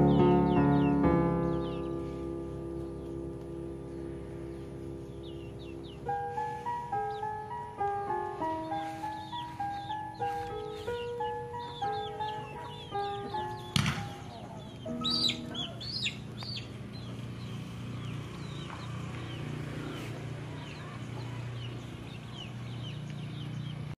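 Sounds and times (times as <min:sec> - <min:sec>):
held music notes: 0:00.0 - 0:18.7
birds calling and chirping: 0:00.0 - 0:24.0.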